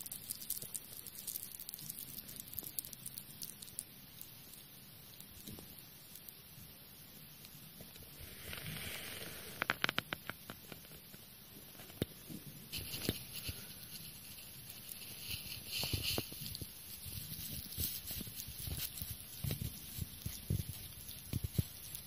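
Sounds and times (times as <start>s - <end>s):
hedgehog sniffing and snuffling: 11.6s - 22.0s.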